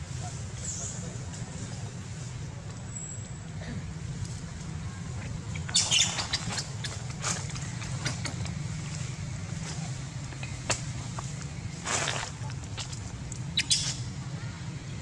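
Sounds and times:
steady low hum: 0:00.0 - 0:15.0
short rustles: 0:05.1 - 0:13.2.

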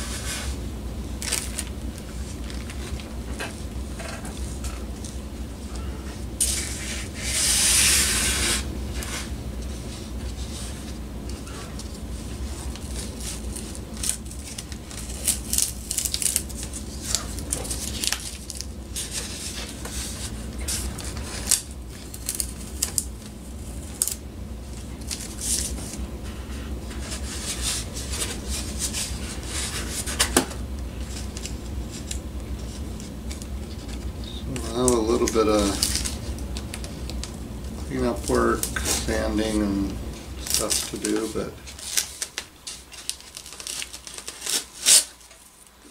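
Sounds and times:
tape being peeled off: 0:06.4 - 0:09.3, 0:12.6 - 0:23.1, 0:40.4 - 0:45.5.

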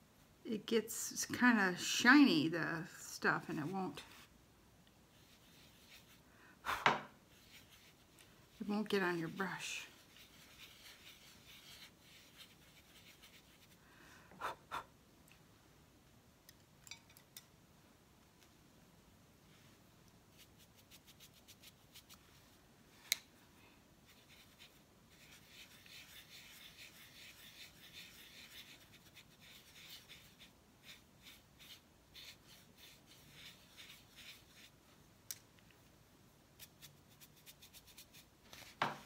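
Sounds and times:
paintbrush scratching and ticking: 0:03.4 - 0:04.3, 0:05.1 - 0:06.2, 0:07.3 - 0:13.8, 0:20.3 - 0:22.2, 0:24.0 - 0:34.9, 0:36.6 - 0:38.8.

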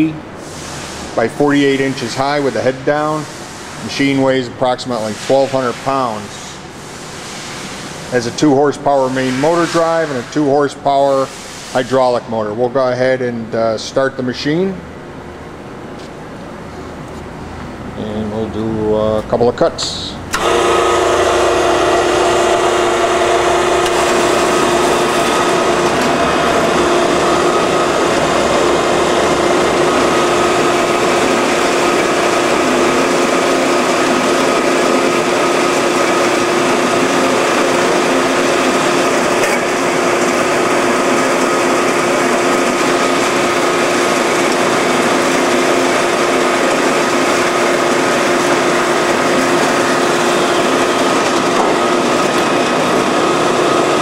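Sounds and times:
band saw motor hum: 0:20.0 - 0:54.0.

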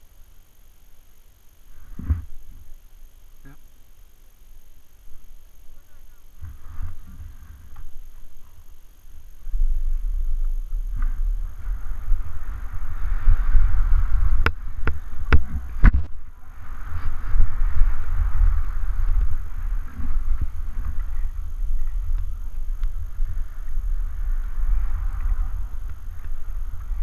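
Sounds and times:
wind buffeting microphone: 0:09.2 - 0:27.0
skis scraping over snow: 0:09.3 - 0:27.0.

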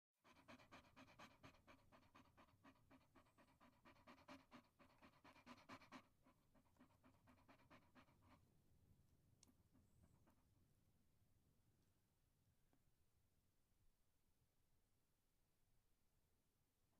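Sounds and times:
dog panting: 0:00.2 - 0:08.5, 0:09.4 - 0:10.5.

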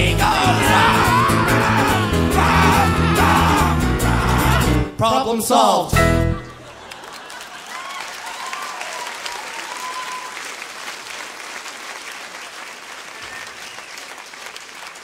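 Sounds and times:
audience applauding: 0:00.4 - 0:04.7, 0:06.4 - 0:15.0
whoops and cheers: 0:00.6 - 0:04.7, 0:07.5 - 0:10.6, 0:13.2 - 0:13.9.

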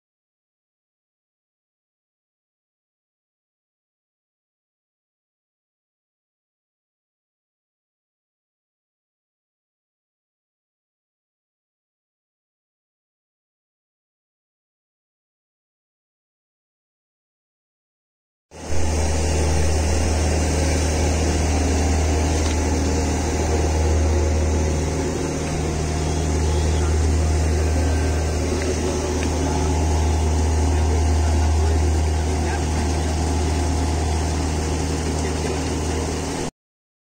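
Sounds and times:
churning water rushing: 0:18.6 - 0:36.5
machinery low hum: 0:18.6 - 0:36.5.

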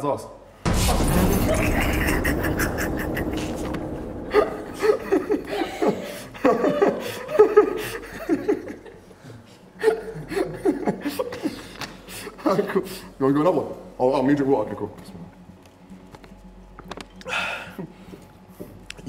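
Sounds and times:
hearty laughter: 0:01.5 - 0:12.9.

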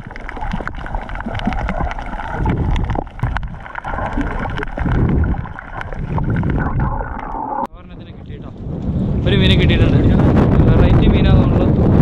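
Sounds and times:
underwater clicks and crackles: 0:00.0 - 0:07.7
underwater water rush: 0:00.0 - 0:07.7
low underwater rumbling: 0:00.0 - 0:12.0.

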